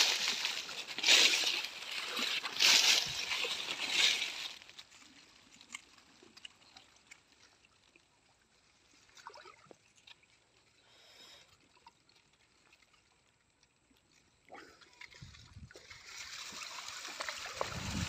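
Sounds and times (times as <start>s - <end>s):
soft water gurgles: 0.0s - 18.0s
water dripping and trickling: 15.0s - 18.0s.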